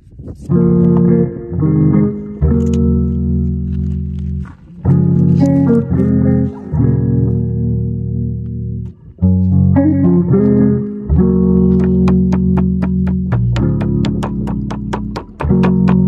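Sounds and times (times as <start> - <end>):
music with low bass notes: 0.1 - 16.0
ticking beat: 10.1 - 16.0.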